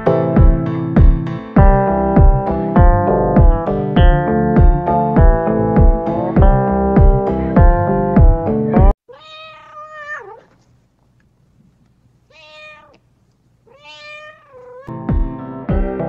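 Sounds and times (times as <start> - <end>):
keyboard background music: 0.0 - 8.9, 14.9 - 16.0
cat meowing: 9.1 - 10.6, 12.3 - 14.9.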